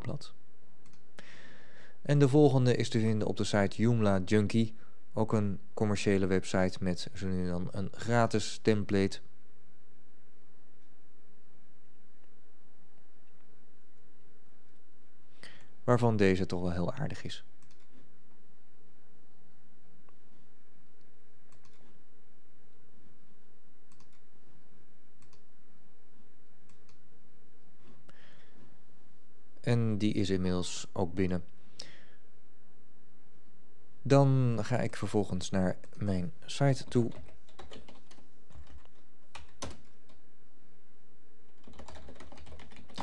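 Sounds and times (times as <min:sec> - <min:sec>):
low background hum: 0:00.0 - 0:43.0
computer keyboard typing: 0:36.8 - 0:40.2, 0:41.5 - 0:43.0.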